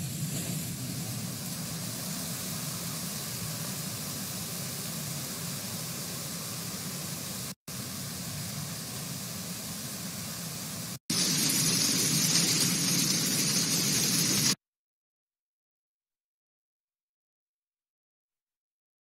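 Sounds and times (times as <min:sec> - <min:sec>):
rain: 0:00.0 - 0:14.6
running water: 0:00.9 - 0:14.6
hail: 0:11.1 - 0:14.6.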